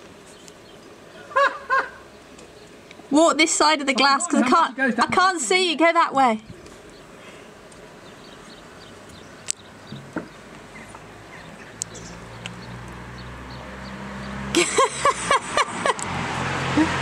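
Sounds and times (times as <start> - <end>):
low vehicle hum: 6.4 - 17.0.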